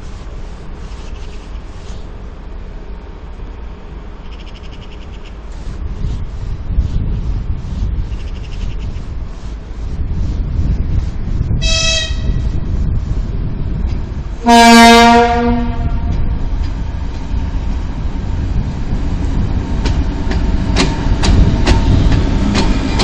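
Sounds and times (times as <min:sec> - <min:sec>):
diesel engine rumbling: 0:00.0 - 0:23.0
locomotive horn blast: 0:11.6 - 0:12.5, 0:14.4 - 0:16.2
train wheels clicking over rail joints: 0:16.0 - 0:23.0.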